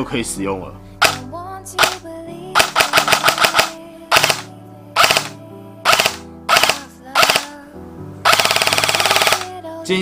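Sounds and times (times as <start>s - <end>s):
airsoft gun firing bursts: 2.6s - 5.3s, 5.9s - 7.5s, 8.3s - 9.5s.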